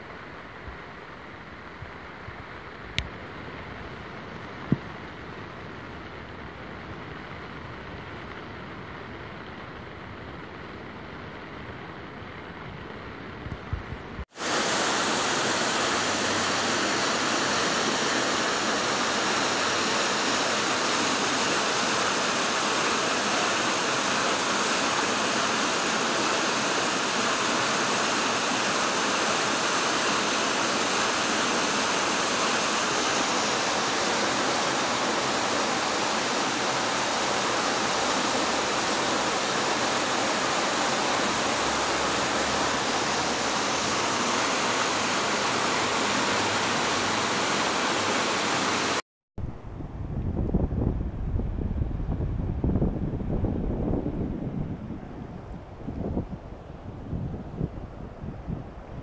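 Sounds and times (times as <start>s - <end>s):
river floodwater rushing: 14.3s - 49.0s.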